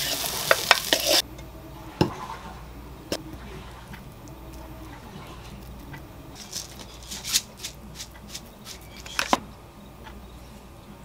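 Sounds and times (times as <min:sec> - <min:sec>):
spatula scraping frying pan: 0:00.0 - 0:01.2, 0:04.6 - 0:09.4.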